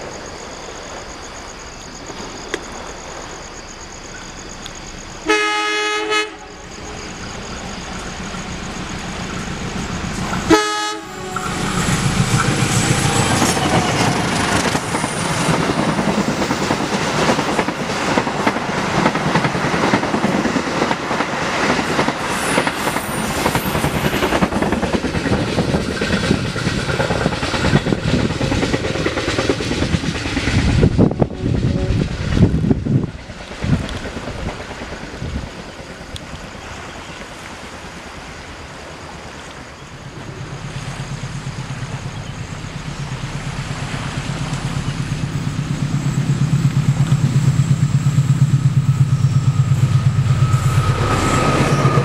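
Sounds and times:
train rushing noise: 0:00.0 - 0:52.0
locomotive horn blasts: 0:05.2 - 0:06.6, 0:10.4 - 0:11.7, 0:31.2 - 0:32.1
train wheels clattering on rails: 0:06.6 - 0:52.0.

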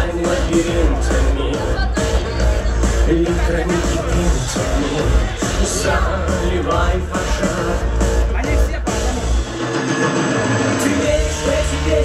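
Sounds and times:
person singing: 0:00.0 - 0:02.4, 0:03.0 - 0:08.0, 0:10.8 - 0:12.0
drum and bass beat: 0:00.0 - 0:12.0.

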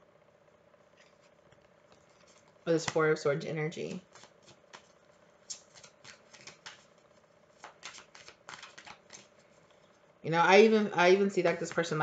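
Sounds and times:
cards being shuffled: 0:01.0 - 0:03.2, 0:03.8 - 0:09.8, 0:11.5 - 0:12.0.

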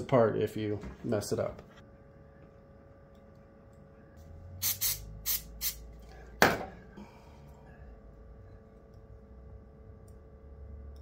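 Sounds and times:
aerosol spray spritzes: 0:04.6 - 0:05.8.

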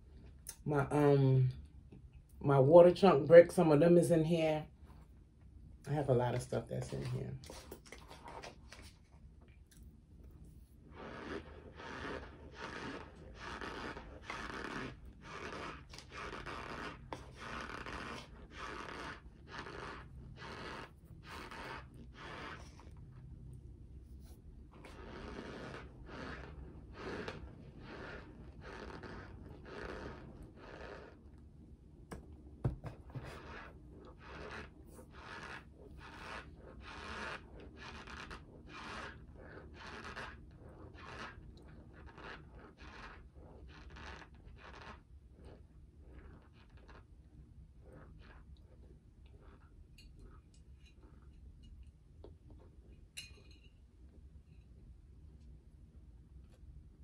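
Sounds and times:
chewing crunchy food: 0:07.4 - 0:23.6, 0:24.8 - 0:31.2, 0:33.4 - 0:47.2
squeaky crunch of chewing: 0:11.0 - 0:20.8.

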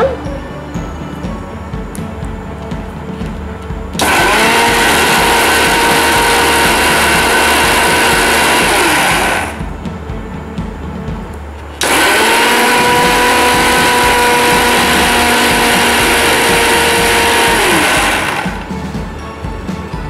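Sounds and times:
mixer grinder motor whining: 0:03.7 - 0:09.9, 0:11.3 - 0:18.9.

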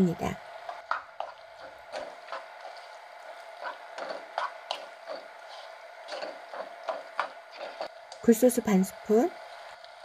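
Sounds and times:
frying hiss: 0:00.0 - 0:10.0
wooden spatula scraping a pan: 0:00.9 - 0:07.9.

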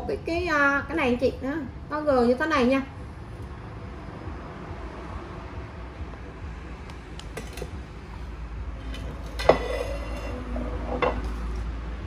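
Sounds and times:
ceramic plate clinking: 0:09.4 - 0:11.3.

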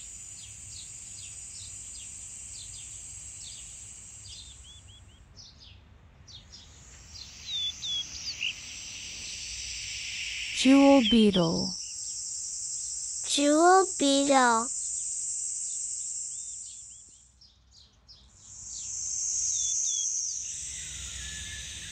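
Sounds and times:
high-pitched insect drone: 0:00.0 - 0:04.6, 0:07.0 - 0:14.0, 0:14.6 - 0:17.0, 0:18.4 - 0:21.9
small birds chirping: 0:00.0 - 0:12.2, 0:12.8 - 0:15.0, 0:16.3 - 0:21.9.

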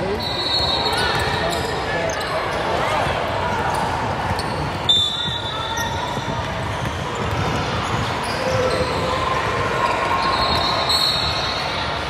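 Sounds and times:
hubbub of players and spectators: 0:00.0 - 0:12.0
basketball bouncing on gym floor: 0:03.0 - 0:09.2.

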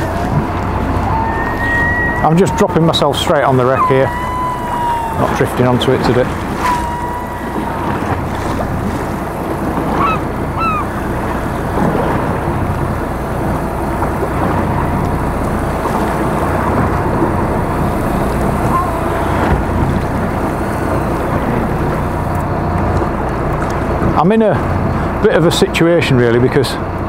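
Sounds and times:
boat engine running: 0:00.0 - 0:27.0
sea noise: 0:00.0 - 0:27.0
wind: 0:00.0 - 0:27.0
short rising calls: 0:01.0 - 0:11.7, 0:17.6 - 0:22.4.

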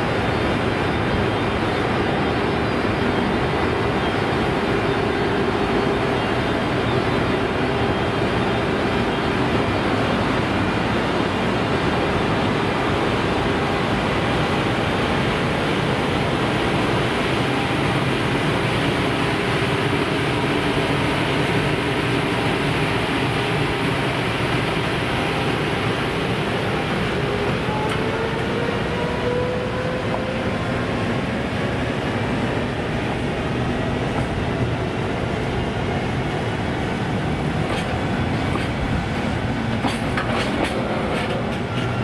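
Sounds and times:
electric locomotive whir: 0:00.0 - 0:42.0.

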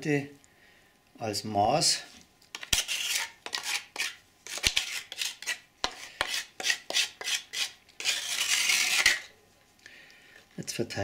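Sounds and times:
spatula scraping plaster bowl: 0:02.5 - 0:09.3.

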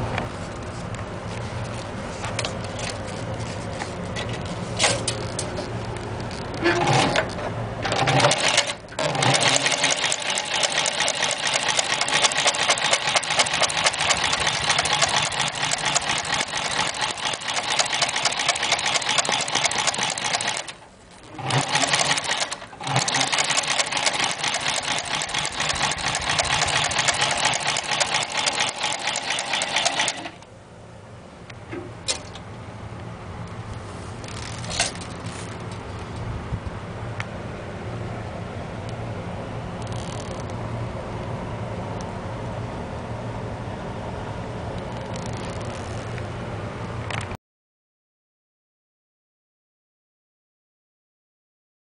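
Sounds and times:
motor low hum: 0:00.0 - 0:47.4
sewing machine stitching: 0:06.6 - 0:30.4.

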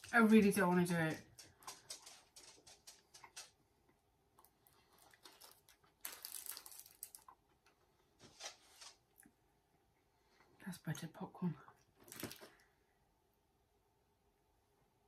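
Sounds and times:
crinkling rustle: 0:04.4 - 0:09.1, 0:12.0 - 0:12.6.

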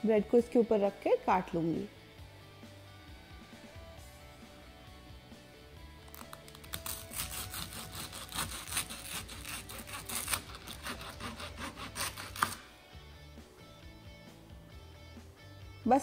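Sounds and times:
knife sawing through toast: 0:06.7 - 0:12.6.

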